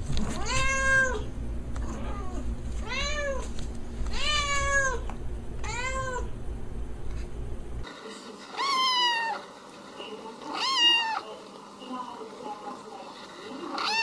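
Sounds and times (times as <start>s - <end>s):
low steady hum: 0.0s - 7.9s
cat meowing: 0.4s - 3.4s, 4.1s - 6.3s, 8.5s - 9.4s, 10.5s - 11.2s, 13.8s - 14.0s
kitten meowing: 0.4s - 3.4s, 4.1s - 5.0s, 5.6s - 6.3s.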